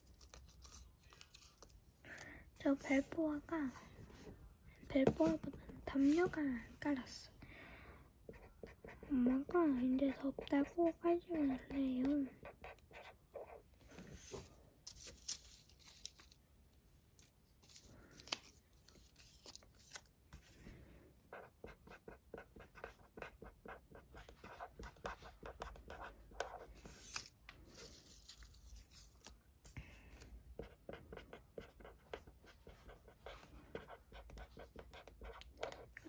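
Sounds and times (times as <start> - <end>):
pen scratching on paper: 8.3 - 13.6, 21.3 - 27.0, 30.6 - 36.0.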